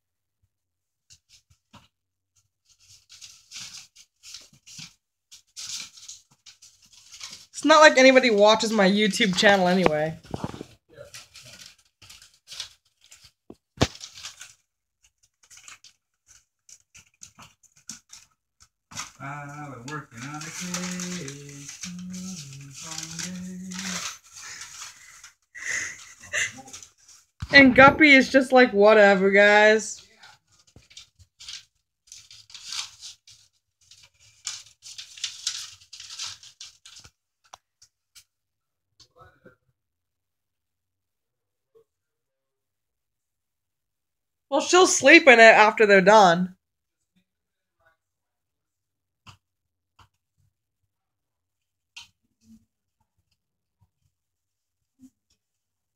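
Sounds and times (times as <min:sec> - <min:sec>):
rats tearing paper bedding: 0:02.6 - 0:07.6, 0:10.2 - 0:27.4, 0:30.0 - 0:37.2.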